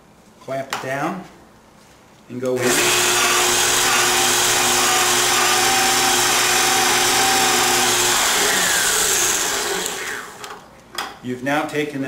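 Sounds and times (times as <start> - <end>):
pipe beveling machine whining: 2.6 - 10.5.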